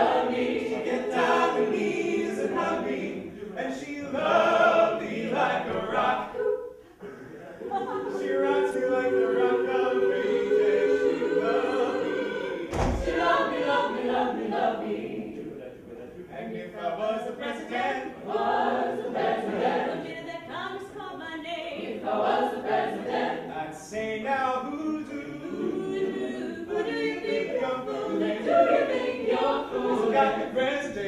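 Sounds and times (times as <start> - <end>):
a cappella group singing: 0.0 - 31.0
low thump: 12.7 - 13.3.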